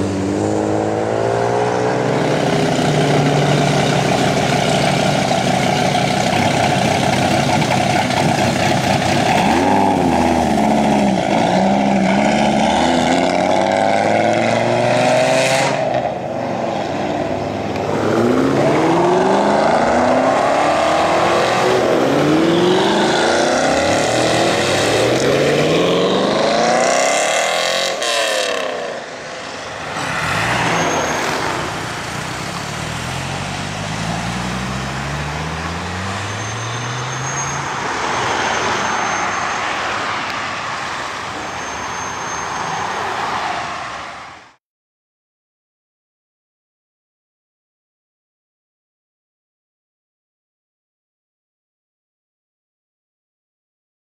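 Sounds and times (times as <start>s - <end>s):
car engine revving through gears: 8.6s - 16.0s, 17.8s - 28.9s, 30.0s - 37.5s.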